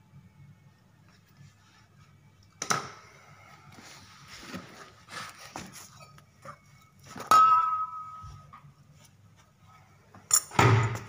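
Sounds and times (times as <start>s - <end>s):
metal tools clinking on tiles: 10.3s - 10.6s.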